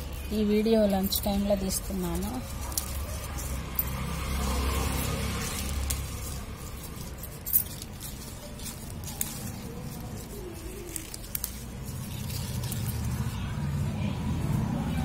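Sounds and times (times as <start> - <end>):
glass bangles clinking: 0.0 - 13.4
leaves rustling: 0.0 - 15.0.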